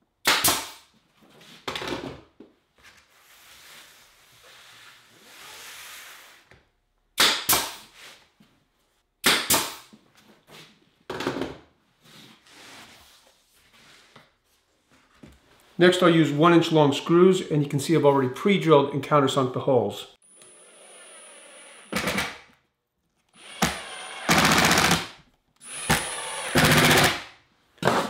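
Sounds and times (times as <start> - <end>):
nail gun firing: 0.2 - 0.8, 7.2 - 7.8, 9.2 - 9.9, 21.9 - 22.5, 23.5 - 25.2, 25.8 - 28.0.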